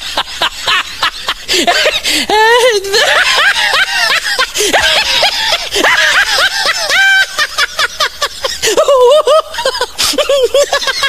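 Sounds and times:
high-pitched laughter: 0.0 - 11.0.

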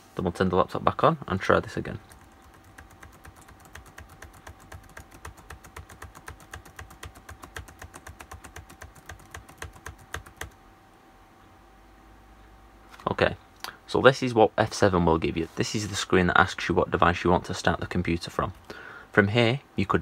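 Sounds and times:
laptop keys tapped rapidly: 2.0 - 10.6.

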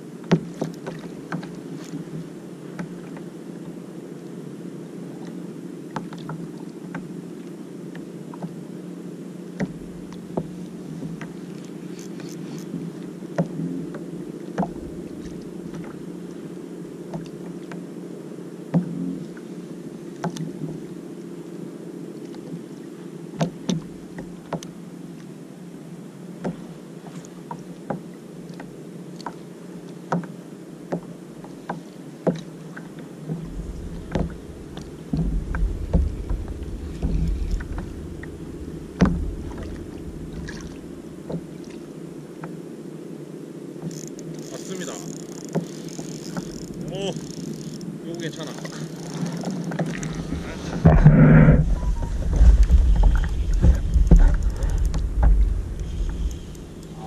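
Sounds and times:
water lapping kayak hull: 0.0 - 57.0
low rumble: 14.7 - 15.5, 33.2 - 42.2, 50.0 - 57.0
muffled drone: 33.3 - 42.1, 49.9 - 57.0.

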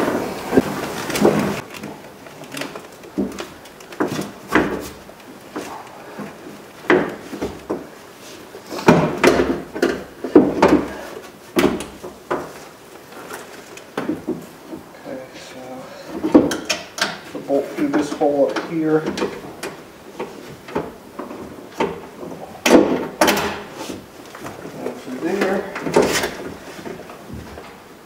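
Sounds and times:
metal clunks and rattles: 0.0 - 8.0, 8.7 - 11.0, 16.0 - 27.9.

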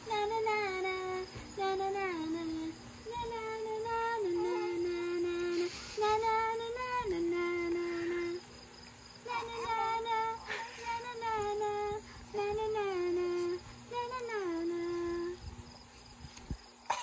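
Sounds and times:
high voice humming a tune: 0.0 - 8.5, 9.2 - 15.5.

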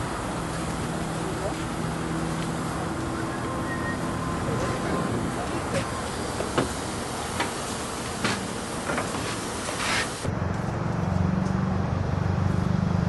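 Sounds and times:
steam hiss: 0.0 - 10.3.

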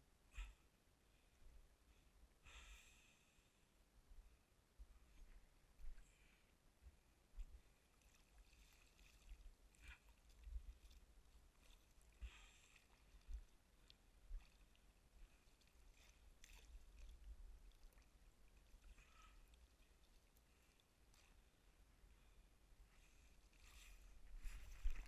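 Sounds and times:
soft splashes from a boat: 7.4 - 22.4, 23.0 - 25.0
water lapping: 7.6 - 21.7, 23.0 - 25.0.

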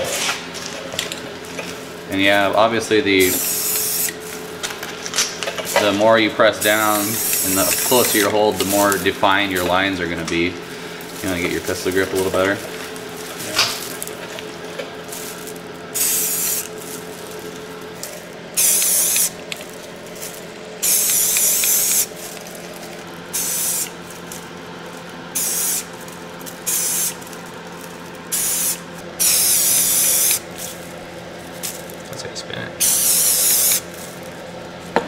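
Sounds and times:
steady low hum: 0.0 - 35.0
spray paint can hissing: 3.2 - 4.2, 6.6 - 9.7, 15.2 - 22.4, 23.3 - 24.4, 25.3 - 27.4, 28.3 - 30.8, 32.8 - 34.1.

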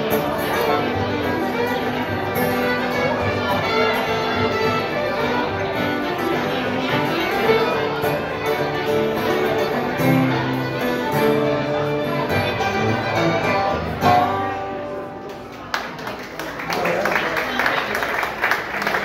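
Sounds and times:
fiddle bowing: 0.0 - 15.2
acoustic guitar: 0.0 - 15.7
banjo: 0.0 - 15.7.

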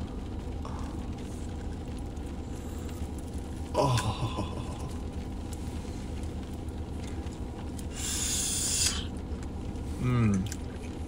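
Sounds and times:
low rumble inside car cabin: 0.0 - 11.0
hiss: 7.9 - 9.1.

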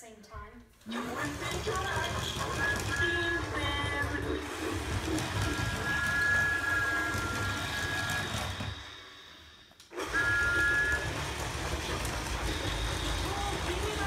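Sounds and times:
toy motor and wheel rumble: 0.9 - 8.8, 10.0 - 14.0
two-note electronic tone: 10.0 - 11.2.

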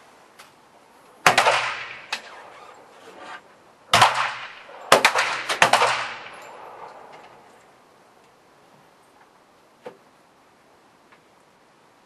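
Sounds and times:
pistol shots with ringing echo: 1.2 - 2.5, 3.9 - 7.5.

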